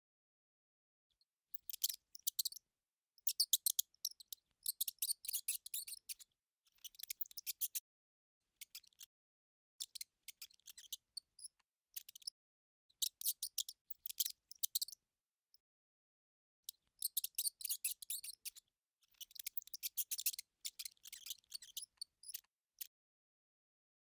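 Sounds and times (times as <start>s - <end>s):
mouse clicks and squeaks: 1.5s - 2.6s, 3.2s - 7.8s, 8.5s - 9.2s, 9.8s - 15.0s, 16.6s - 23.0s.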